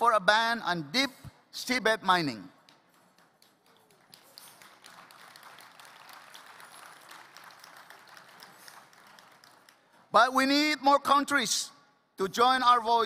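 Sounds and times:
audience applauding: 0:02.9 - 0:10.1.

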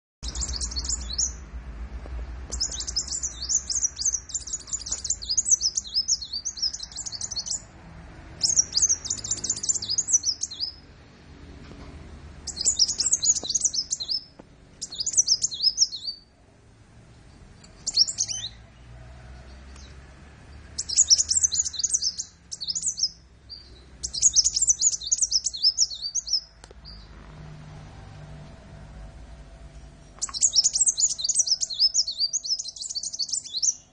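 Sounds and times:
bird twittering: 0:00.2 - 0:01.4, 0:02.5 - 0:07.7, 0:08.4 - 0:10.8, 0:12.4 - 0:16.3, 0:17.6 - 0:18.6, 0:20.8 - 0:27.1, 0:30.1 - 0:33.9.

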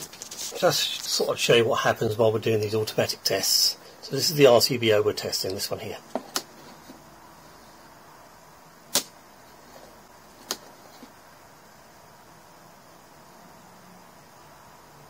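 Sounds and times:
circuit breaker tripping snap: 0:08.9 - 0:09.2.

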